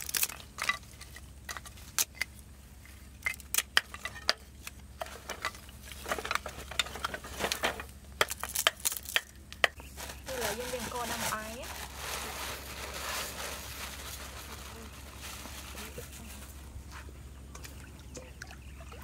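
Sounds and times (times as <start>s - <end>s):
steady low hum: 0.0s - 19.0s
small hard objects clicking: 8.2s - 9.8s.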